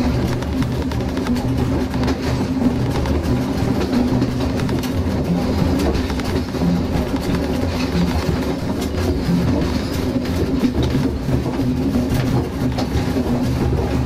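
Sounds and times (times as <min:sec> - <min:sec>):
train rumbling: 0:00.0 - 0:14.0
wheels clicking over rail joints: 0:00.0 - 0:14.0.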